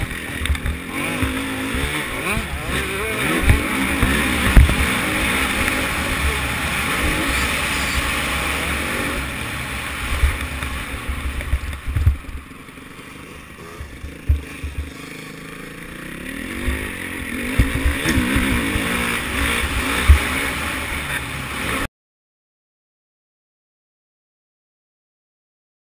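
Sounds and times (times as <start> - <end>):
motocross bike engine revving: 0.0 - 21.9
low knocks from bumps: 13.8 - 15.0.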